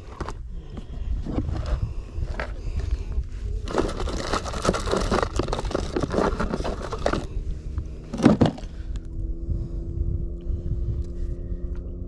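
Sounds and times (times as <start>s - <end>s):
steady low rumble: 0.0s - 12.0s
rummaging in plastic tackle box: 1.2s - 3.0s, 3.6s - 7.3s, 8.1s - 8.7s.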